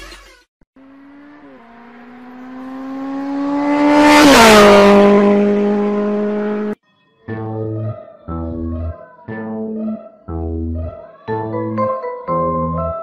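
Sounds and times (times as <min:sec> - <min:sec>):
car passing at speed: 0:00.8 - 0:06.8.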